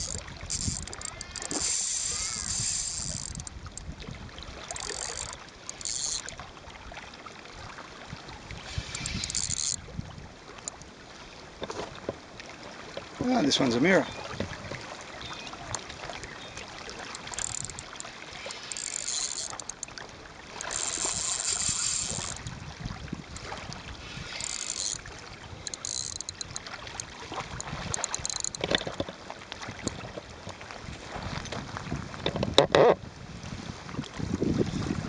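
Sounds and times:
small waves lapping on pebbles: 0.0 - 32.3
fish splashing: 14.2 - 22.5, 23.2 - 28.6.

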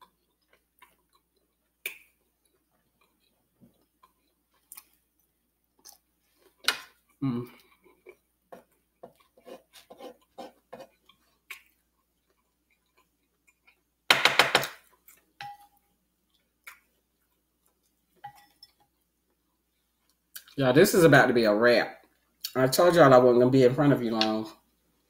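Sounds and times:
wooden spoon scraping a plate: 8.5 - 11.2.

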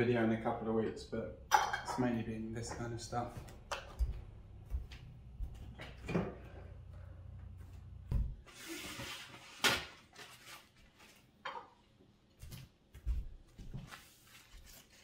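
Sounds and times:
dull thumps like footsteps: 2.7 - 6.4, 7.4 - 8.5.

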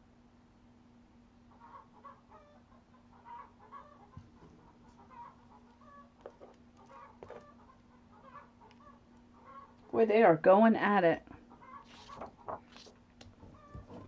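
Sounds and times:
chickens clucking: 1.5 - 9.9, 11.4 - 12.6, 13.4 - 14.0.

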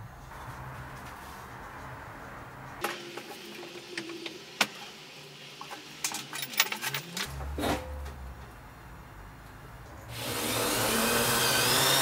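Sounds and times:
metal parts clinking: 6.0 - 7.3
metal clank: 6.0 - 8.2
metal clatter: 6.0 - 8.2.

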